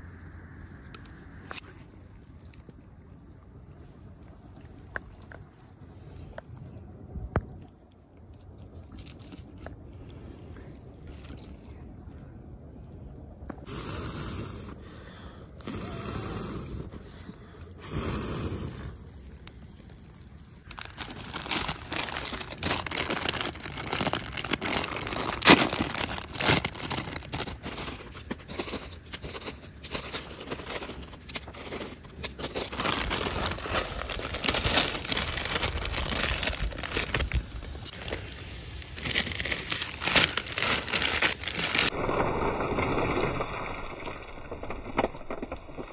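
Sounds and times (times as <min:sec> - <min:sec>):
plastic packets tearing and crinkling: 0:19.2 - 0:42.0.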